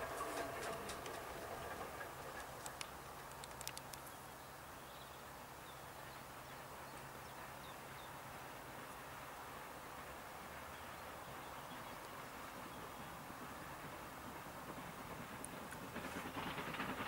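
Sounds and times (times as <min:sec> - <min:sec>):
passing train: 0:00.0 - 0:17.0
sharp clicks: 0:02.4 - 0:04.2.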